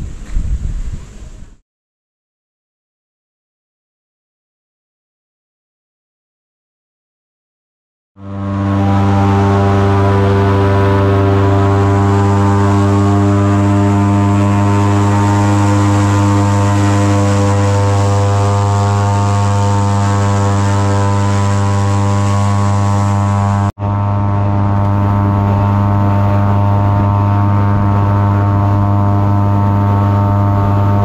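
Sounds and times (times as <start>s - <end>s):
airboat engine and propeller drone: 8.2s - 31.0s.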